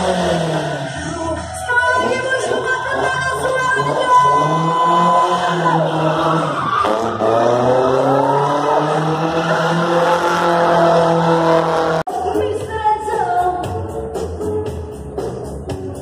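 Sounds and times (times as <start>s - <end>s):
car engine at high revs: 0.0s - 1.2s, 2.0s - 12.1s.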